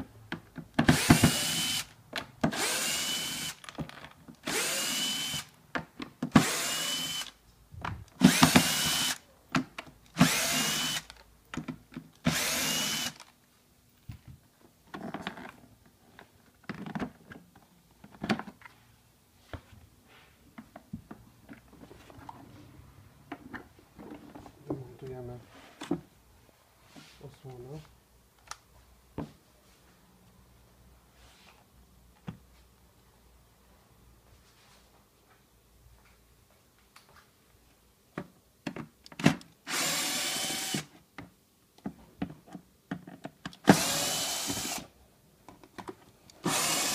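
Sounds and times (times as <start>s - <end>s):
drill-driver whining: 0.8s - 1.9s, 2.5s - 3.7s, 4.4s - 5.5s, 6.4s - 7.4s, 8.2s - 9.2s, 10.2s - 11.2s, 12.2s - 13.3s, 39.7s - 40.9s, 43.6s - 44.9s, 46.4s - 46.9s.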